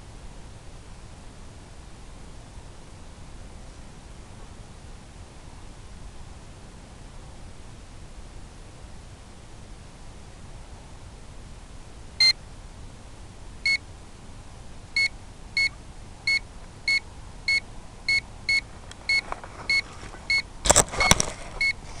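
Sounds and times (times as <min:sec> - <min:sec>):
crackling clicks: 0:18.8 - 0:22.0.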